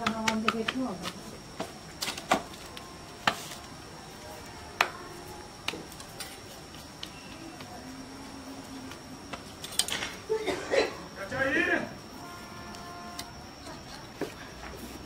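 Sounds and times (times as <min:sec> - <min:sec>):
dough patted between palms: 0:00.0 - 0:02.5, 0:03.2 - 0:03.6.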